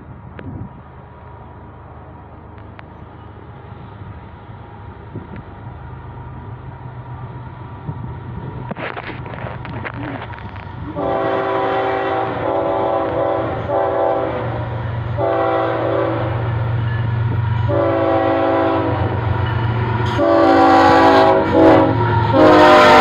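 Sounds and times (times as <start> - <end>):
diesel engine rumble: 0.0 - 22.9
locomotive air horn blasts: 10.9 - 16.5, 17.6 - 19.3, 20.0 - 23.0.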